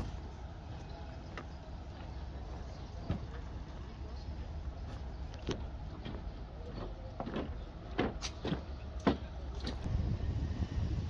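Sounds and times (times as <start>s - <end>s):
low rumble: 9.8s - 11.0s.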